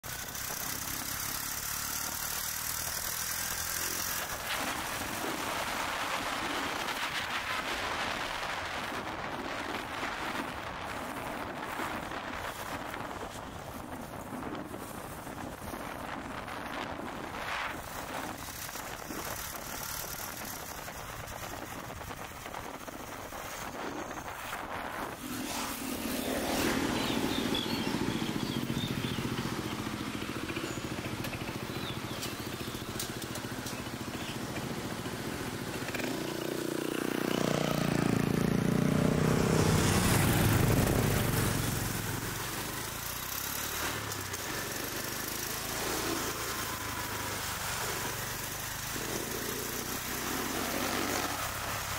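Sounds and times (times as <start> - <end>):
city traffic: 0.0 - 51.9
motorcycle engine: 0.0 - 51.9
vehicle passing: 24.4 - 51.9.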